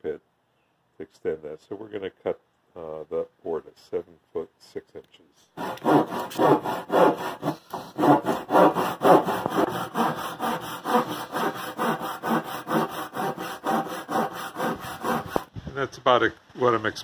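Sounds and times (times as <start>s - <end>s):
handsaw cutting wood: 5.6s - 15.5s.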